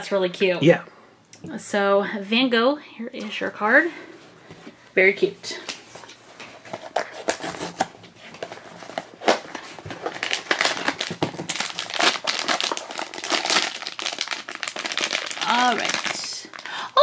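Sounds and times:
foil wrapper crinkling: 0:06.8 - 0:17.0.

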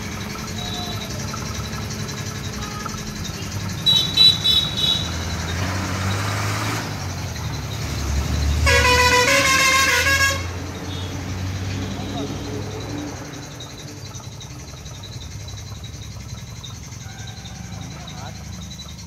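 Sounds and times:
low vehicle engine rumble: 0:00.0 - 0:19.0
vehicle horn blast: 0:03.8 - 0:05.1, 0:08.6 - 0:11.1.

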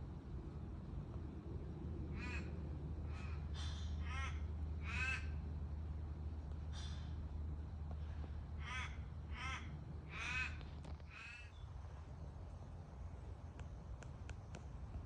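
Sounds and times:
steady low rumble: 0:00.0 - 0:15.0
crow cawing: 0:02.2 - 0:02.5, 0:03.1 - 0:05.4, 0:08.6 - 0:11.5.

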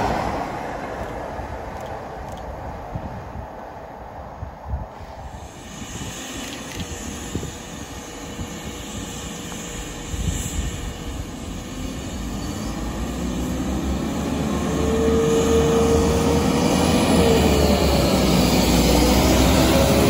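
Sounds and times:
train wheels on rails: 0:00.0 - 0:03.3, 0:04.9 - 0:20.0
diesel train engine: 0:00.0 - 0:20.0
high steady whine: 0:04.7 - 0:20.0.

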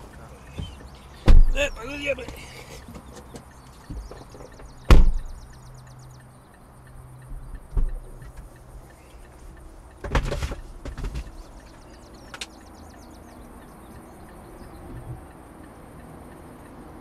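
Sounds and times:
tailgate clunking open: 0:00.0 - 0:05.5, 0:07.4 - 0:08.4, 0:10.0 - 0:11.4
car door slamming: 0:00.5 - 0:02.5, 0:03.9 - 0:05.5, 0:07.4 - 0:08.4, 0:10.0 - 0:11.4.

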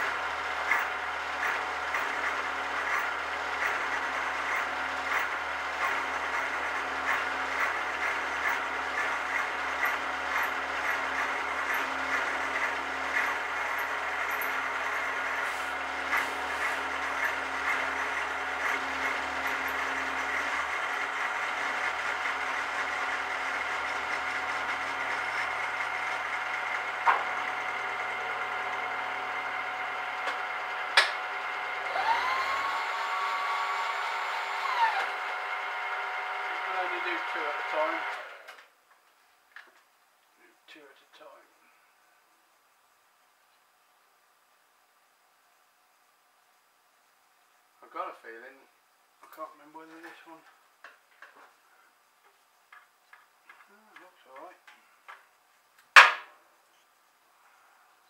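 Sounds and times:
machine low hum: 0:00.0 - 0:38.6
milling machine cutting metal: 0:00.0 - 0:38.6
aerosol spraying: 0:15.4 - 0:16.8.

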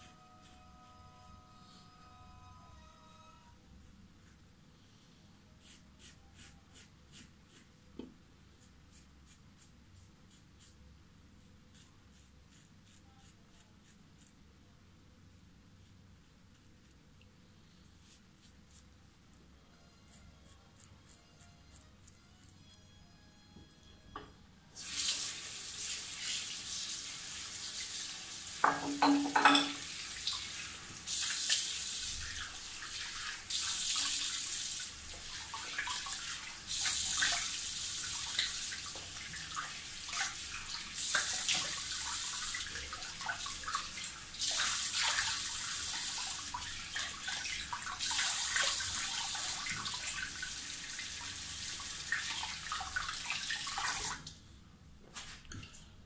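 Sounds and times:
short squeaky tone: 0:00.4 - 0:03.6
tap running into sink: 0:28.6 - 0:29.9.

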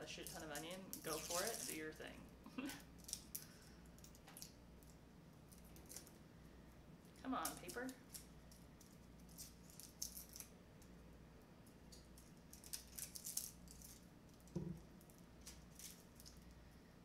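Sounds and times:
onion skin crackling and rustling: 0:00.0 - 0:02.3, 0:02.9 - 0:06.2, 0:11.9 - 0:16.6
soft knock: 0:14.6 - 0:14.8.

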